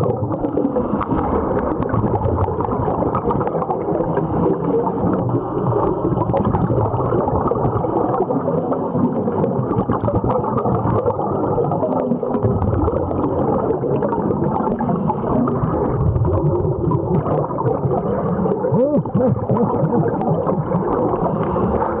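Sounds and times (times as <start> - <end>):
underwater bubbling and gurgling: 0.0 - 22.0
regulator inhalation hiss: 0.5 - 1.6, 4.0 - 5.2, 8.3 - 9.4, 11.6 - 12.4, 14.8 - 15.6, 18.1 - 18.7, 21.2 - 22.0.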